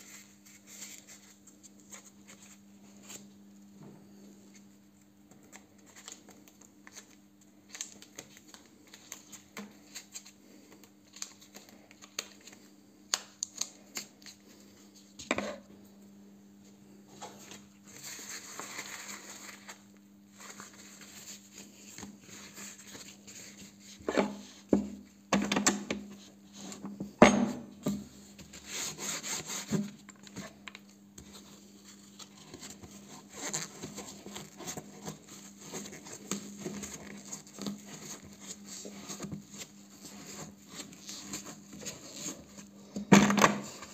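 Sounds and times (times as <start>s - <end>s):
cloth rubbing and rustling: 17.8s - 24.6s.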